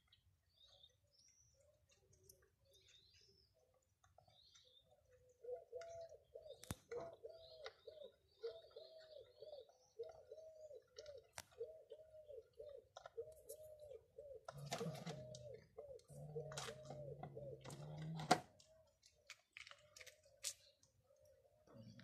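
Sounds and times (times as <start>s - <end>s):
faint bird chirps: 0.0s - 17.9s
low cooing: 5.4s - 18.5s.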